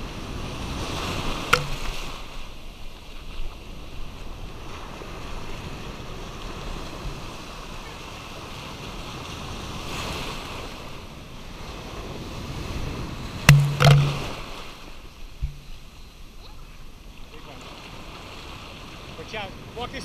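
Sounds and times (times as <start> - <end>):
surf breaking and washing: 0.0 - 15.8, 16.8 - 20.0
water knocking on camera: 1.5 - 2.1, 13.5 - 14.5, 15.4 - 15.7.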